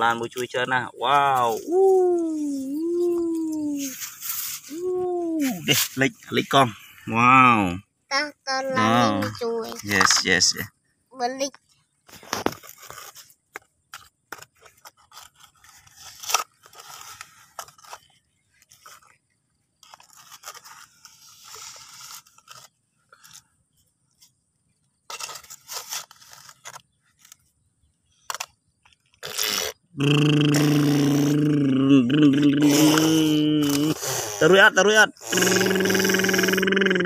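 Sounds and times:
toy bucket scraping mud: 3.8s - 4.8s, 12.1s - 23.4s, 25.0s - 27.5s.

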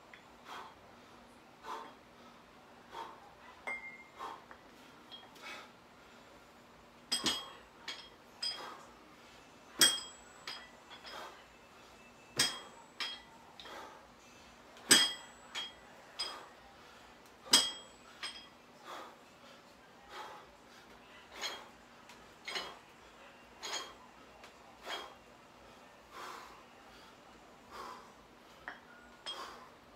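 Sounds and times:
dumbbells clinking metal on metal: 1.6s - 2.0s, 2.9s - 5.7s, 7.0s - 8.9s, 9.7s - 11.4s, 12.2s - 14.0s, 14.8s - 16.6s, 17.3s - 19.1s, 21.2s - 25.2s, 27.7s - 29.8s.

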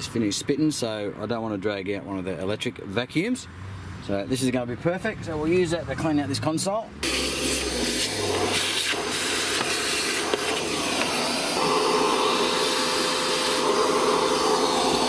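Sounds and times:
handheld vacuum cleaner running: 7.0s - 15.0s.

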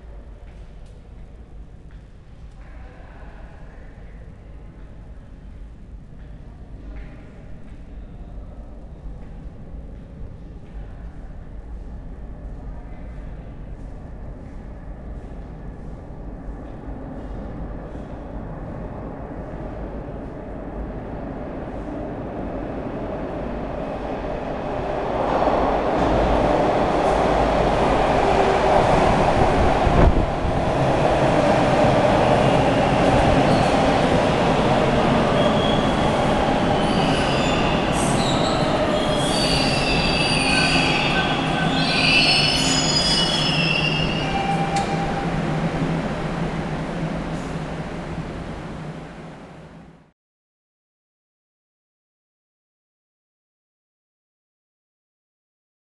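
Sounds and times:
train rumble: 0.0s - 50.1s
train brakes squealing: 36.8s - 45.3s.

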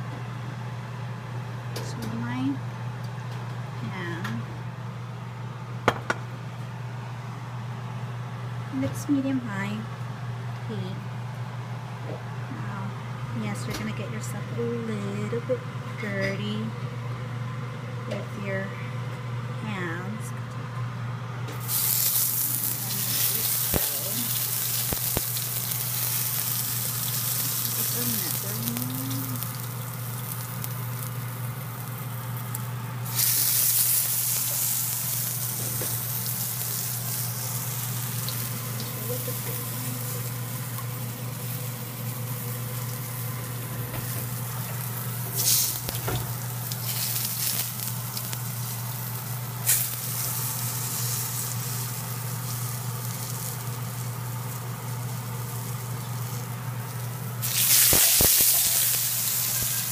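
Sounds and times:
sharp oil crackles: 21.6s - 43.4s, 44.0s - 59.9s
bread frying in hot oil: 21.6s - 59.9s.

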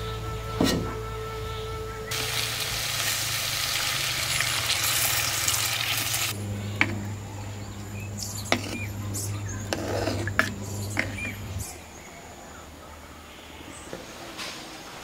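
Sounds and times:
water hissing and sizzling in hot pot: 2.1s - 6.4s.

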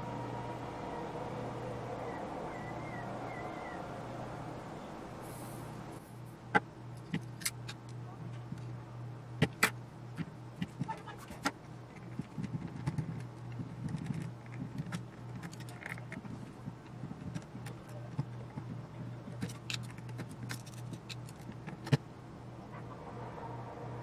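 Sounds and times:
low hum: 0.0s - 24.0s
screwdriver and metal parts clicking: 19.3s - 22.0s.

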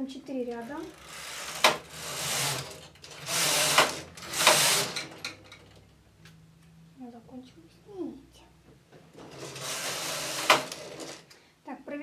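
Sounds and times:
knitting machine carriage sliding: 0.4s - 5.8s, 9.1s - 11.4s.

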